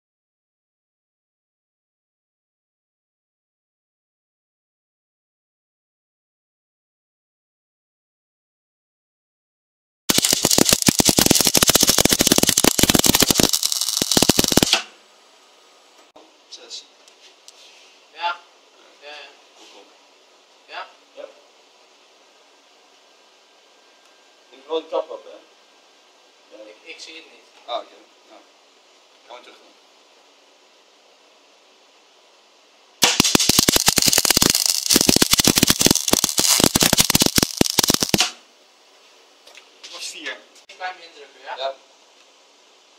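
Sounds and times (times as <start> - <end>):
welding arc crackling: 10.1 - 14.9, 33.0 - 38.4.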